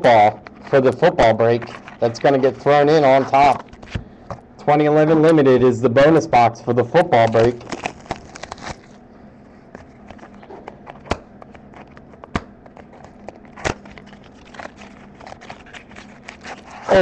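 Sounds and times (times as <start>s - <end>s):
faint steady hum: 0.0s - 17.0s
sharp packaging clicks: 7.2s - 9.0s, 10.0s - 17.0s
wrapper and cardboard crackling: 7.2s - 9.0s, 11.5s - 17.0s.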